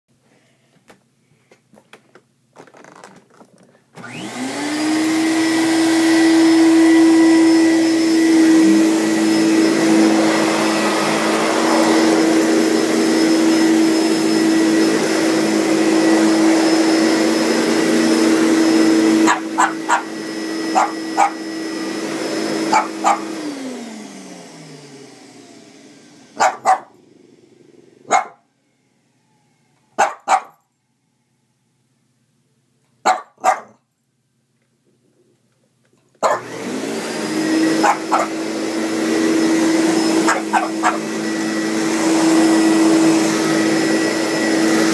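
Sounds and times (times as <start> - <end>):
vacuum cleaner running: 3.9 - 29.9, 36.2 - 44.9
dog barking: 19.2 - 20.1, 20.7 - 21.4, 22.7 - 23.3, 26.4 - 27.0, 28.0 - 28.4, 30.0 - 30.6, 33.0 - 33.8, 36.2 - 36.5, 37.8 - 38.4, 40.2 - 41.1.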